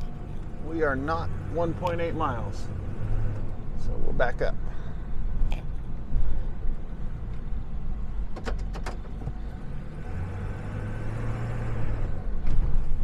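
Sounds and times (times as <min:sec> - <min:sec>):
truck engine rumbling: 0:00.0 - 0:13.0.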